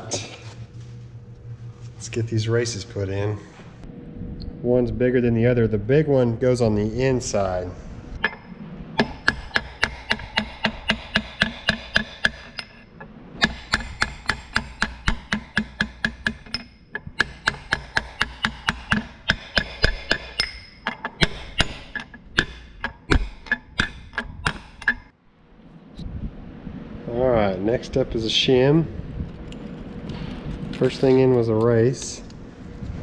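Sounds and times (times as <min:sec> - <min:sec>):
hammer striking metal: 0:08.2 - 0:12.8, 0:13.4 - 0:25.1.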